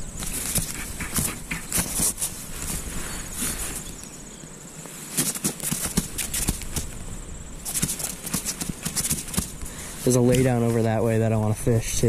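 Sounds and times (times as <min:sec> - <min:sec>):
footsteps crunching on stones: 0:00.0 - 0:04.0, 0:04.9 - 0:07.0.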